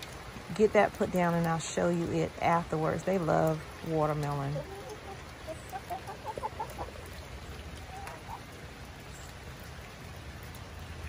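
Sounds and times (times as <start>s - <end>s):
rain pattering: 0.0s - 11.0s
hens clucking: 4.2s - 8.6s.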